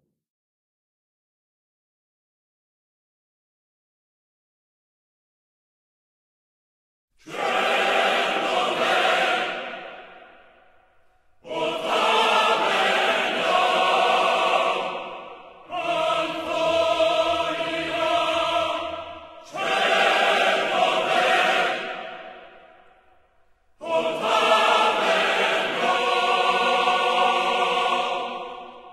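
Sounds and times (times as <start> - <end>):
choir singing held chords: 7.2 - 28.9.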